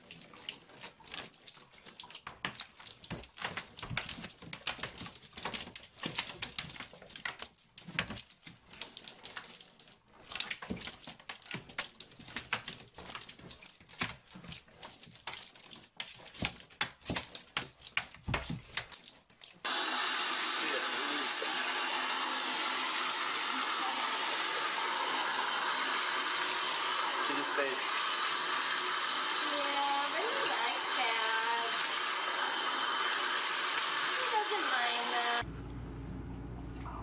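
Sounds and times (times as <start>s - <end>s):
cat's paws scrambling in bathtub: 0.0s - 19.6s.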